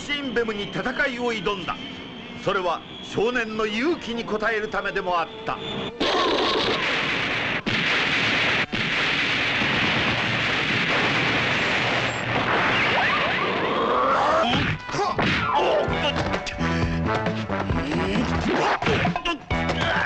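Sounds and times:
explosion blast noise: 6.0s - 13.7s.

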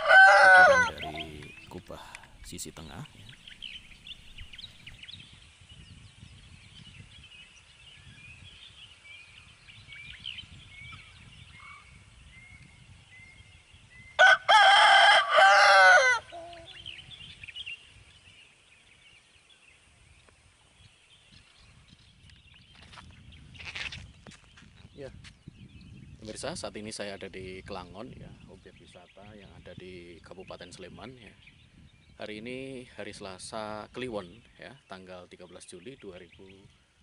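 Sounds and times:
rooster crowing: 0.0s - 1.6s, 14.2s - 16.8s
small bird chirping: 0.8s - 6.0s.

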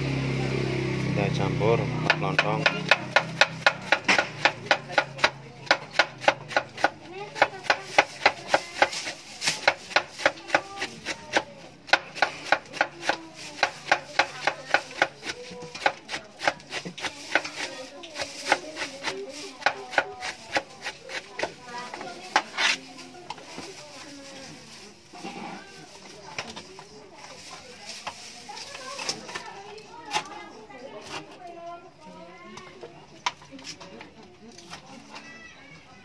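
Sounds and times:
knife chopping cabbage on board: 2.0s - 23.5s.

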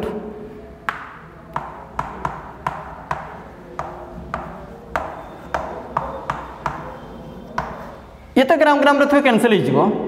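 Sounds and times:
chalk tapping on a board: 0.8s - 8.2s.

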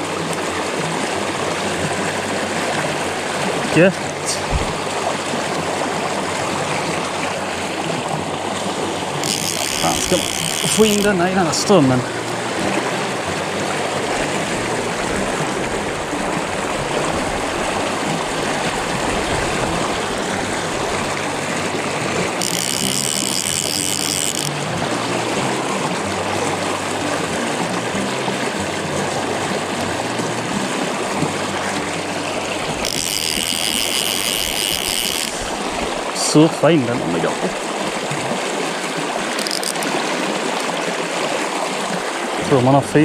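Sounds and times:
river current rushing: 0.0s - 43.0s
fly reel ratcheting: 9.1s - 11.8s, 21.0s - 24.8s, 32.6s - 35.7s, 39.3s - 40.0s.

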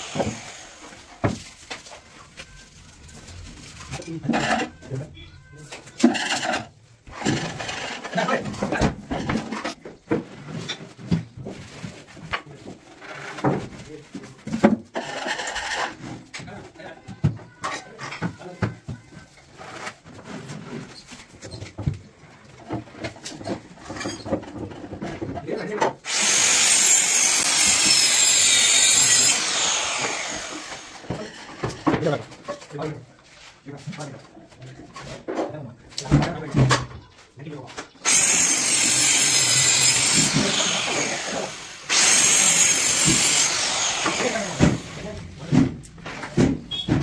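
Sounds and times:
power tool hissing: 0.0s - 1.0s, 26.1s - 31.0s, 38.0s - 45.1s.

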